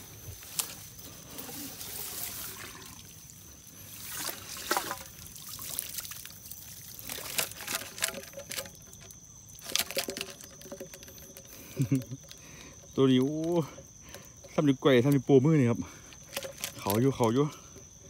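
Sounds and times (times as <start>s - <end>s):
water trickling: 0.4s - 17.6s
rustling: 6.9s - 11.8s.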